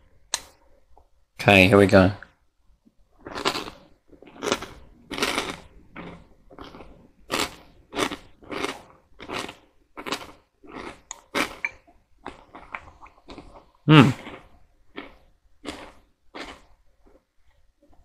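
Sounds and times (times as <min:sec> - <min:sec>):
person chewing crunchy cereal: 0:03.2 - 0:11.6, 0:12.2 - 0:17.2.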